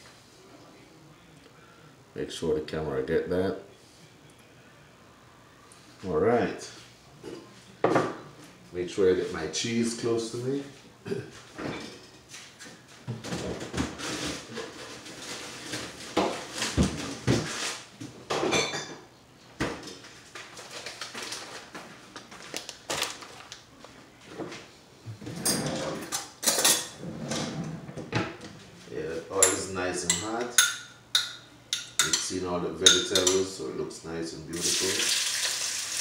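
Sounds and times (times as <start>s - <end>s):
dishes and cutlery clattering: 11.6s - 12.2s, 25.3s - 27.6s, 29.4s - 33.5s.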